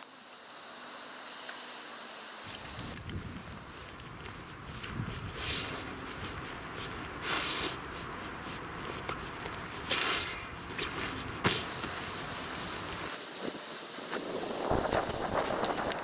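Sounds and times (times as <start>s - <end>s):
tent fabric rustling: 3.6s - 16.0s.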